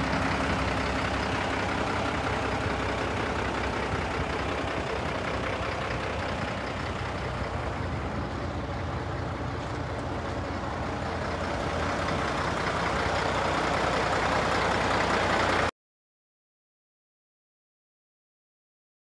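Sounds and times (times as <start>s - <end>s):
diesel engine running: 0.0s - 15.7s.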